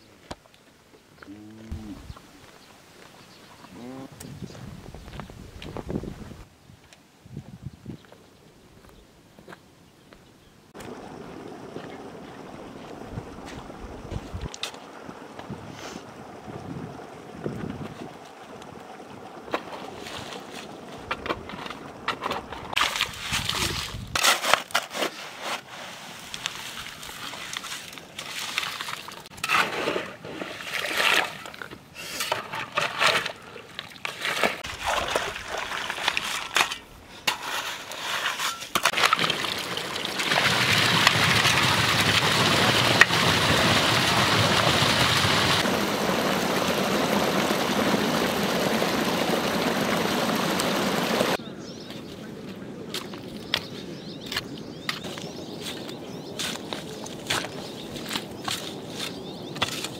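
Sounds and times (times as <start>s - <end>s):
mud splashing into water: 26.6s - 31.7s, 32.3s - 36.8s, 38.8s - 51.4s
rushing water flowing: 38.8s - 51.4s.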